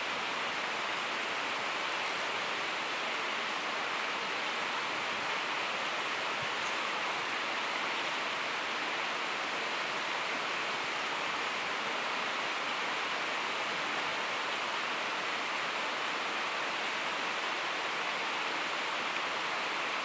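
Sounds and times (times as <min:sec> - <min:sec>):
river water rushing: 0:00.0 - 0:20.0.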